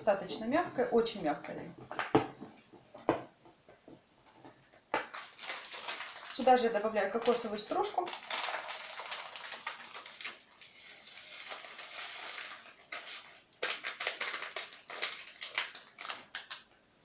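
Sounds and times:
plastic packets crinkling: 5.0 - 16.8.

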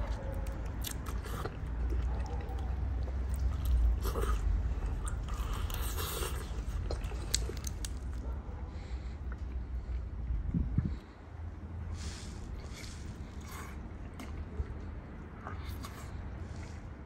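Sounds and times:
low steady rumble: 0.0 - 17.0
crunching fried chicken bites: 3.3 - 8.2.

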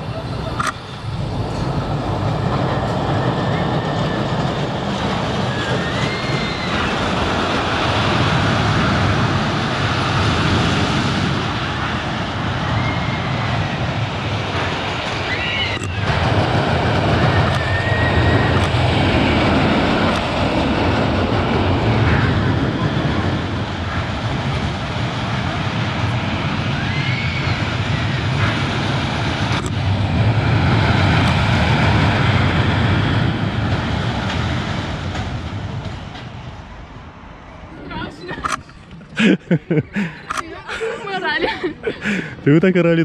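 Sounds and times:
high-pitched squeals: 0.0 - 7.6, 14.9 - 16.2
ride car rumbling on track: 0.0 - 43.0.

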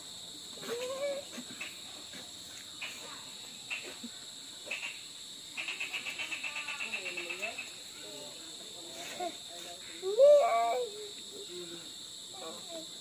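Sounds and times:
short insect chirps: 0.0 - 10.4
night insects chirring: 0.0 - 13.0.

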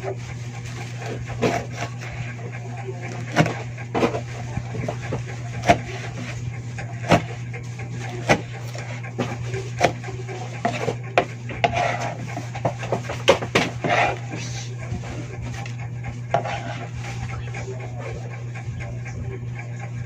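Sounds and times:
steady low hum: 0.0 - 20.0
knife chopping on cutting board: 1.0 - 1.9, 3.2 - 6.4, 7.0 - 7.4, 8.0 - 14.4, 16.3 - 17.0.

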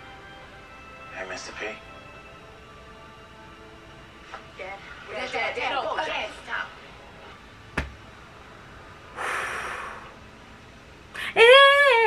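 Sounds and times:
woman breathing: 9.1 - 10.2, 11.1 - 11.4
woman whimpering moan: 11.2 - 12.0.

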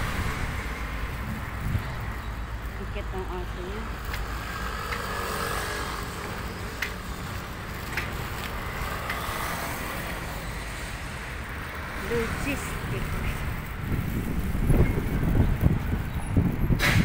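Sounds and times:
low rumble of traffic: 0.0 - 17.0.

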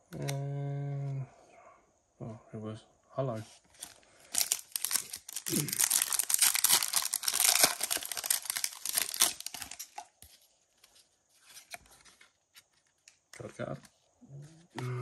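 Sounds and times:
foil wrapper crinkling and tearing: 3.8 - 10.2.

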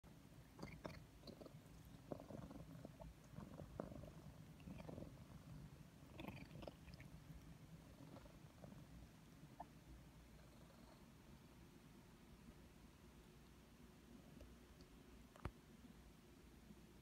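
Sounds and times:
cat purring: 0.4 - 11.6.

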